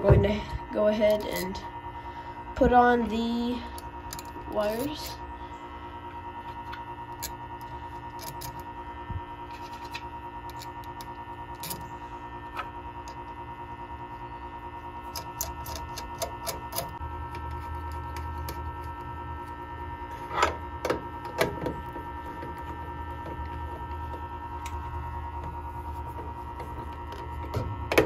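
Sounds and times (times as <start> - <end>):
electrical hum: 0.0 - 28.0
high steady whine: 0.0 - 28.0
metal clicks of wire terminals: 15.1 - 19.1.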